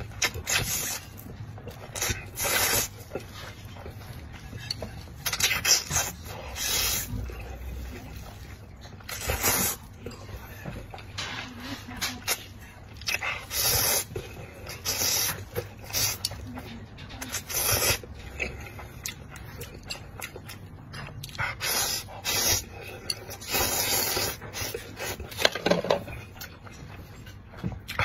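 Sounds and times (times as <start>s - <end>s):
wet chewing clicks: 0.0s - 11.2s, 12.0s - 28.0s
noodles being slurped: 0.1s - 3.5s, 4.2s - 10.5s, 11.9s - 16.4s, 17.2s - 18.6s, 21.6s - 25.6s.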